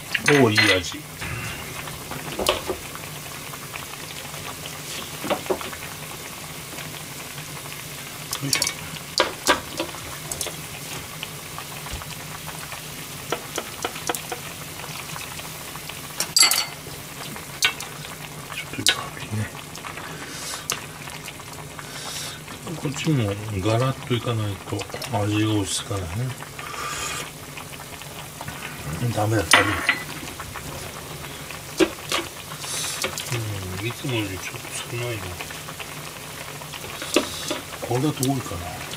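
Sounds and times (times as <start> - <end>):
soup simmering and bubbling: 0.0 - 38.9
metal ladle knocking a pan: 16.3 - 16.8.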